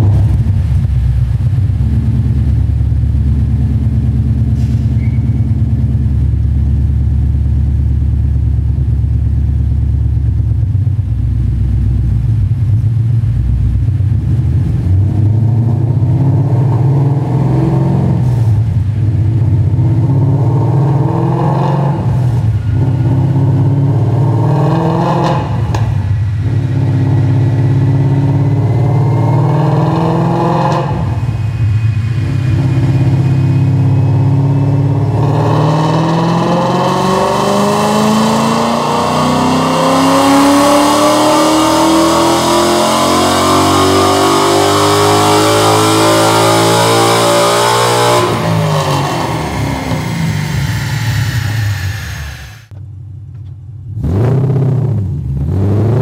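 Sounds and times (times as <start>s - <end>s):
car engine revving: 13.3s - 52.7s, 53.9s - 56.0s.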